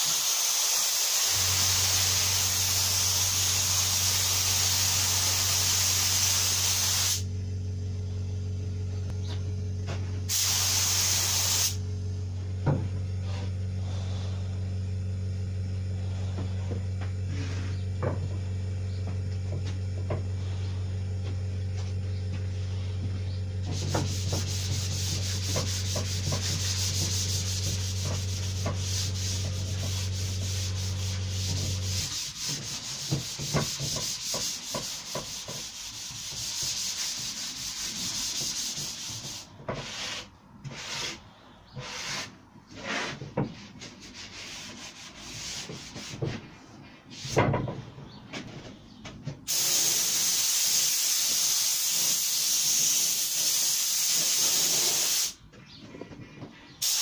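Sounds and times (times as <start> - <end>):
paint spray gun hissing: 0.0 - 7.3, 10.3 - 11.8, 49.5 - 55.4, 56.8 - 57.0
steady low hum: 1.4 - 50.2
sanding block rubbing wood: 23.6 - 41.2, 41.8 - 46.4.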